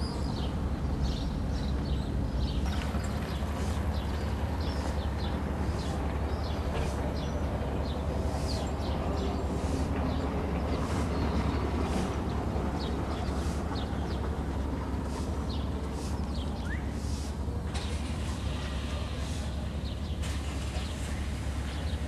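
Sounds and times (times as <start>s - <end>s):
low machinery rumble: 0.0s - 22.0s
bird chirps: 16.3s - 17.0s.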